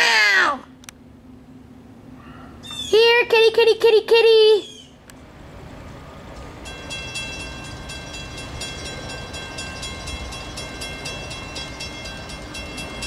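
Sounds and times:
freight train rumbling: 5.2s - 13.0s
crossing bell ringing: 6.4s - 13.0s.

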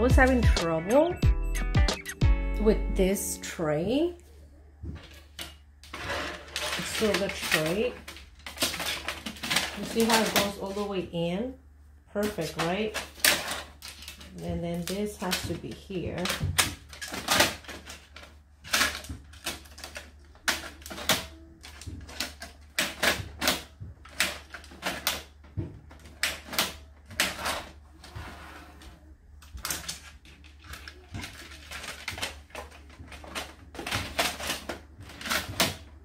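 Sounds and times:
tray sliding scrape: 5.9s - 7.0s, 28.0s - 28.9s.

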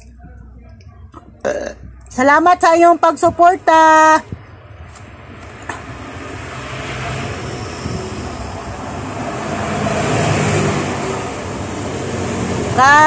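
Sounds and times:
motor vehicle passing by: 4.6s - 13.0s.

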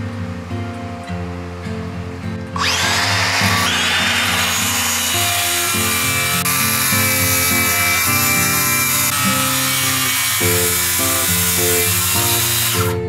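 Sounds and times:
background music: 2.5s - 13.0s
circular saw cutting wood: 2.6s - 13.0s.

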